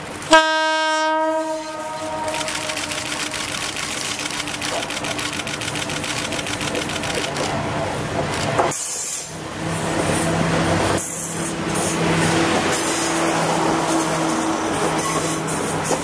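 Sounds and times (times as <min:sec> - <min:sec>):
diesel railcars passing: 0:00.0 - 0:16.0
rattling diesel engine beat: 0:01.6 - 0:07.0.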